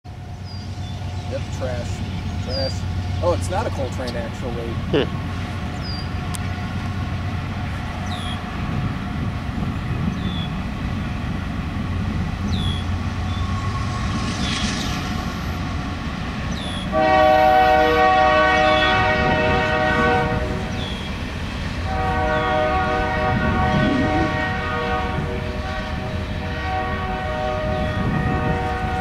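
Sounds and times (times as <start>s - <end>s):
train rumbling past: 0.1s - 29.0s
locomotive horn blast: 16.9s - 20.8s, 21.8s - 29.0s.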